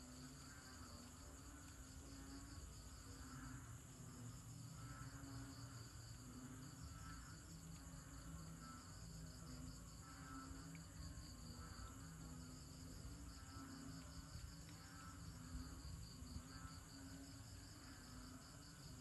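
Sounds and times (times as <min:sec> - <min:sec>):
crickets trilling: 0:00.0 - 0:19.0
frog calling: 0:08.5 - 0:13.8.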